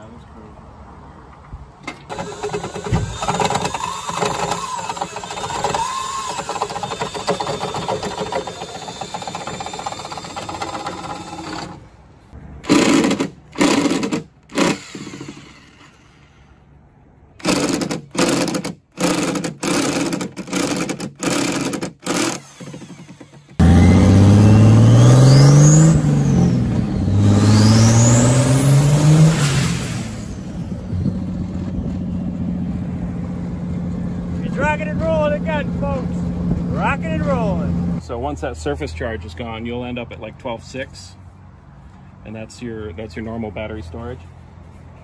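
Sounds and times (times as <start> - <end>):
power drill drilling into metal: 2.1 - 11.8, 12.7 - 16.2, 17.4 - 24.3
drill short bursts: 2.1 - 12.0, 12.6 - 16.7, 17.4 - 30.7.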